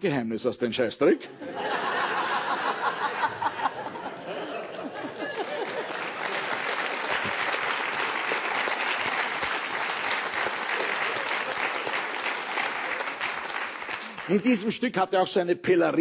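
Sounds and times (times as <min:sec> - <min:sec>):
audience applauding: 0:02.4 - 0:14.7.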